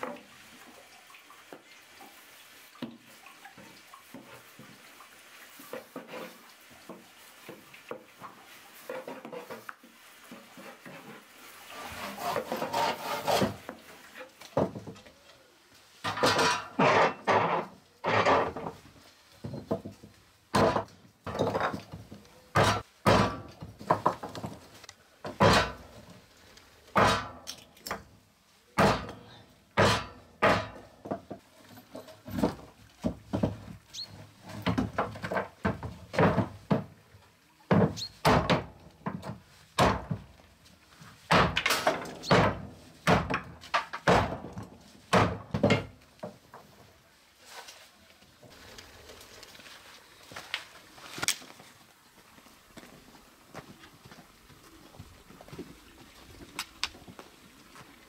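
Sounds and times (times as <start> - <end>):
hatchet chopping wood: 22.6 - 24.1, 27.0 - 27.4, 28.8 - 29.2, 29.8 - 30.8, 39.8 - 40.2, 41.3 - 44.5, 45.1 - 45.8.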